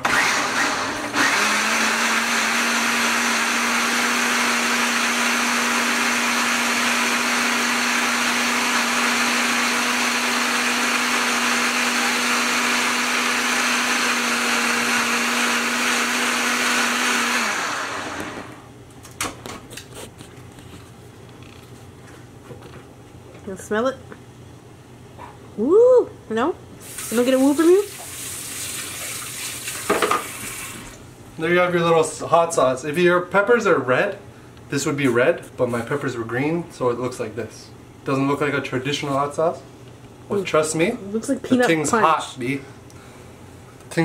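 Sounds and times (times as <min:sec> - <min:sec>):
blender whirring: 0:00.0 - 0:18.7.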